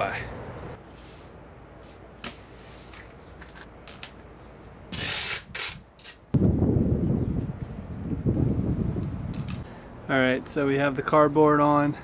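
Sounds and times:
packing tape ripping: 4.9s - 6.2s.

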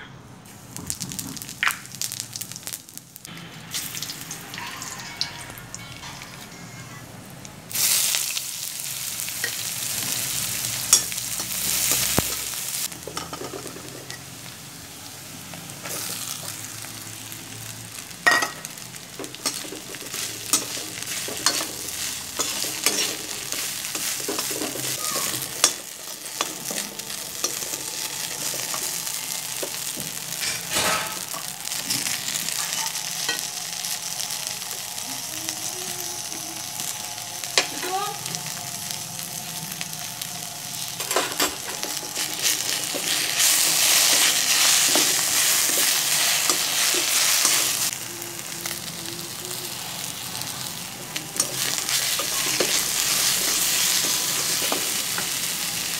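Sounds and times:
food sizzling in a pan: 0.4s - 55.9s
spatula clanking: 10.8s - 12.4s, 18.2s - 32.1s, 41.0s - 47.9s, 51.3s - 55.4s
metal spatula scraping a pan: 19.2s - 29.8s.

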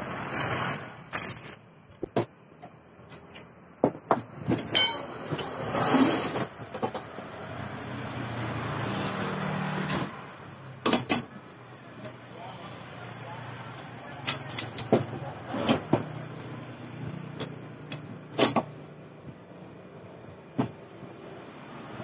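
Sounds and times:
short hiss: 0.2s - 1.7s
metal knocks and clanks: 3.8s - 5.6s.

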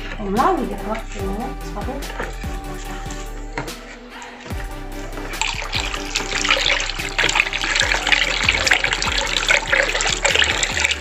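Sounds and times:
liquid splashing and trickling: 0.0s - 11.0s
oil pouring into liquid: 4.4s - 11.0s.

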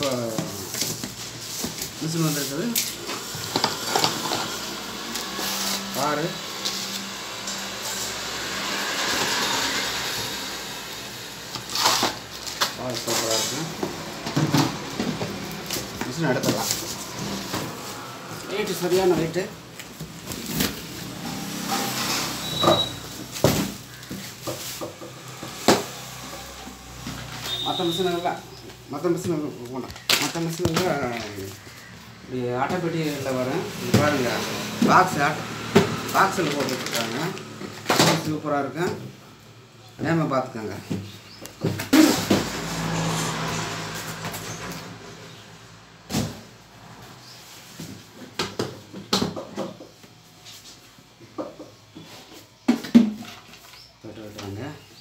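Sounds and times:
cardboard boxes rustling: 11.7s - 17.9s.

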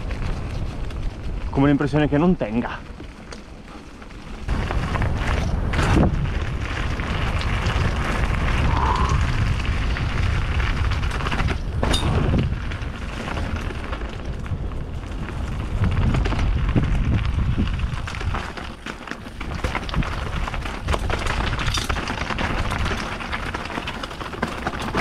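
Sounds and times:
bike tyres rolling over rock: 0.0s - 25.0s
bike wheels knocking on rocks: 0.0s - 25.0s
low microphone rumble: 4.4s - 18.4s.

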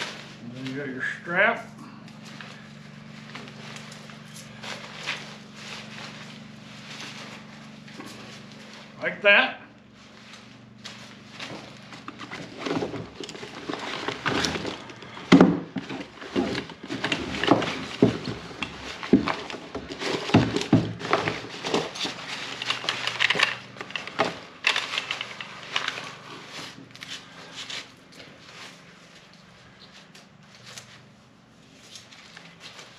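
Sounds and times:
folding chair rustling: 0.0s - 32.9s
chair clicks and knocks: 11.9s - 26.0s.

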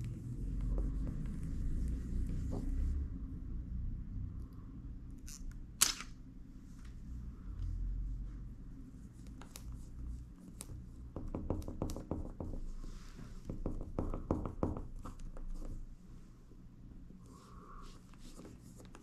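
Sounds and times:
small clicks and scratchy rubs: 9.2s - 10.8s.

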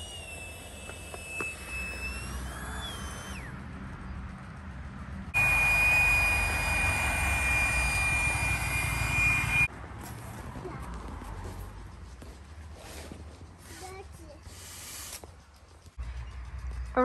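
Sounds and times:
electric air pump whining: 0.0s - 3.7s, 5.3s - 9.7s, 14.4s - 15.4s.

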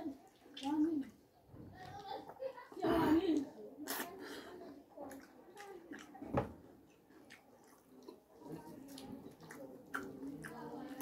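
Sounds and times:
chewing: 0.0s - 2.4s, 3.3s - 11.0s.

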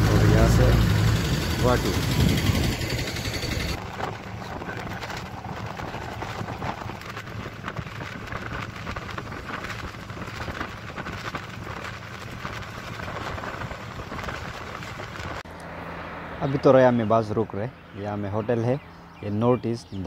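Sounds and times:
bus engine drone: 0.0s - 7.7s, 12.1s - 19.3s
road and wind noise: 0.0s - 20.0s.

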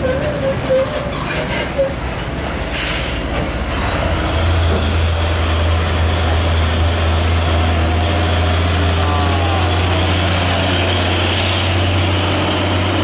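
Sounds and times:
truck diesel drone: 1.8s - 13.0s
air brake hiss: 2.7s - 3.3s.

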